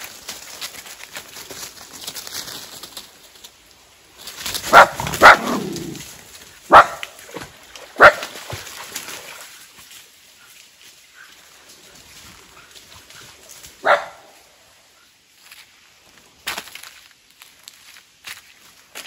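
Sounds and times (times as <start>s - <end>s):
dog barking: 4.7s - 5.8s, 6.7s - 7.1s, 8.0s - 8.3s, 13.8s - 14.4s.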